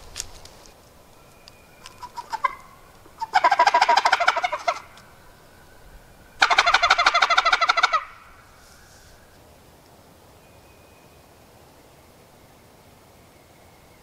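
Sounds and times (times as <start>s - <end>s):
turkey gobble call: 1.8s - 9.3s.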